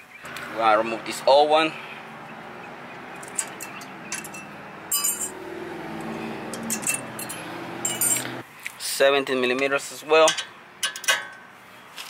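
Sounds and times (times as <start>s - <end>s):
metallic clinks and scrapes: 3.2s - 5.4s, 6.0s - 8.4s.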